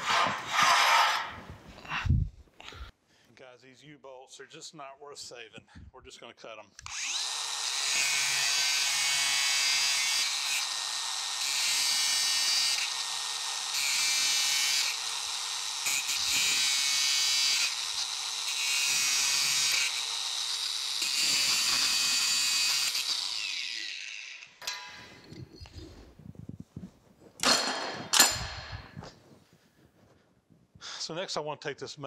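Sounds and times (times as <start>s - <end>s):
angle grinder cutting steel: 0.0s - 1.4s, 6.8s - 25.7s.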